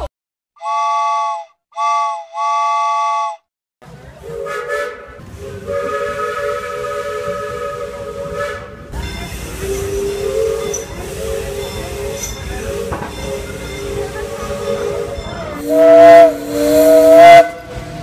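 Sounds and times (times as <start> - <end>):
steam locomotive whistle: 0.6 - 3.4, 4.2 - 18.0
steam hissing: 4.2 - 18.0.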